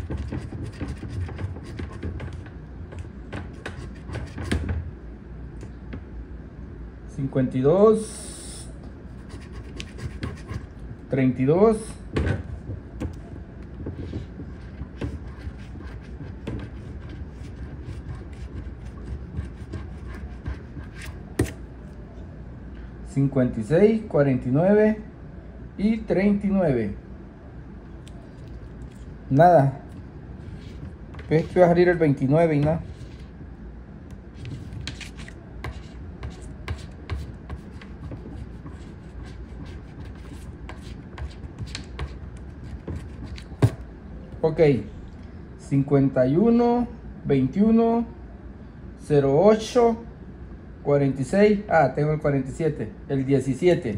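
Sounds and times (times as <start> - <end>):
coin scratching lottery ticket: 0.0 - 2.3.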